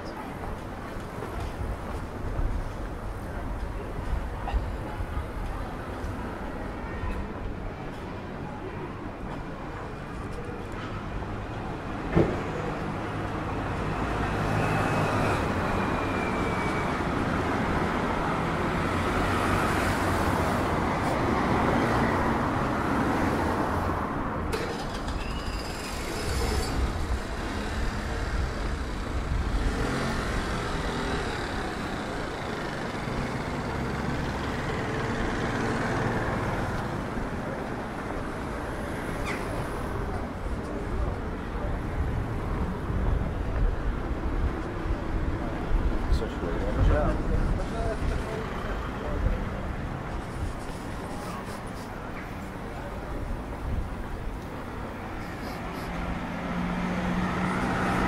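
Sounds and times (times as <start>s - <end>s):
street traffic passing: 0.0s - 58.0s
faint high squeal sliding down: 14.3s - 17.1s, 24.7s - 27.0s.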